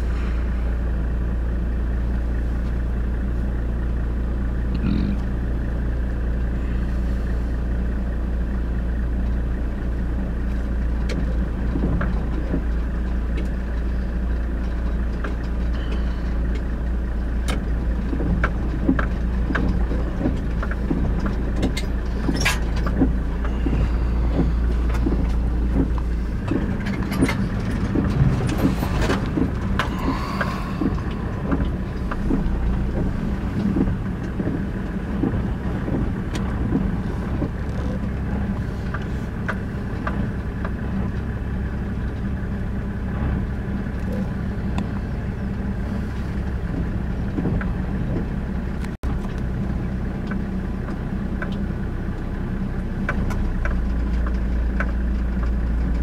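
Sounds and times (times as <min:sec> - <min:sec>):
car engine low drone: 0:00.0 - 0:56.0
small clicks and ticks: 0:50.2 - 0:52.3, 0:53.0 - 0:56.0.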